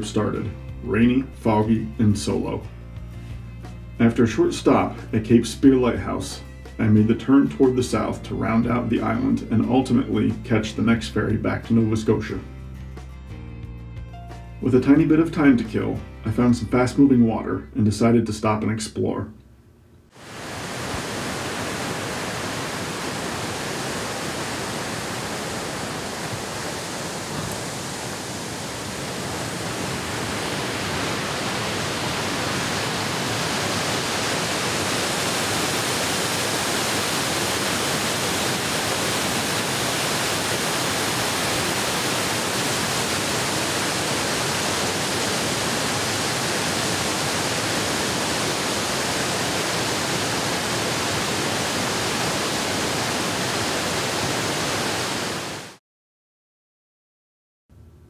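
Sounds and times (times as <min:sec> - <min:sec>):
stream water rushing: 0:20.1 - 0:55.8.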